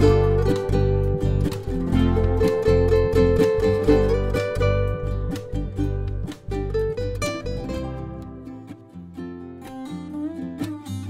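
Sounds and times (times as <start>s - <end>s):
steady low bass: 0.0s - 7.9s
plucked string notes: 0.0s - 11.0s.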